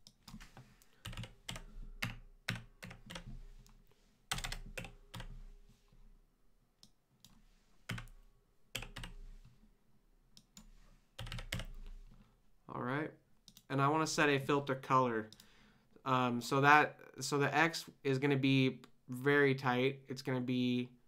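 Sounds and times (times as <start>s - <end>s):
typing on computer keyboard: 0.0s - 3.3s, 4.3s - 5.4s, 7.9s - 8.1s, 8.8s - 9.2s, 10.4s - 11.8s.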